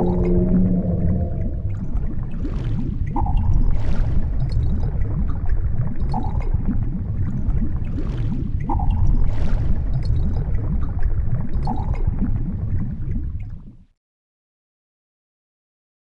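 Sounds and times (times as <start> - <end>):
short mid-pitched tone: 0.0 - 1.7
deep underwater rumble: 0.0 - 13.8
gurgling water: 0.0 - 13.9.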